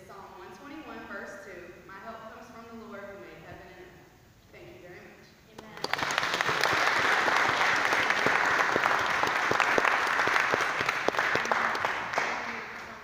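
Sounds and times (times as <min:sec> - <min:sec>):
congregation applauding: 0:05.7 - 0:13.0.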